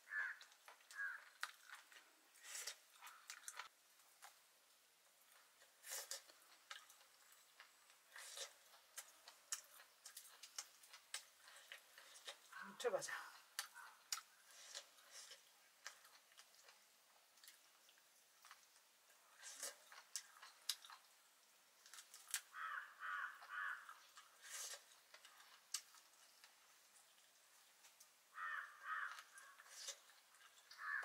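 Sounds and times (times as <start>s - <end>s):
distant animal calls: 0.0s - 1.4s, 22.5s - 24.0s, 28.3s - 29.8s, 30.7s - 31.0s.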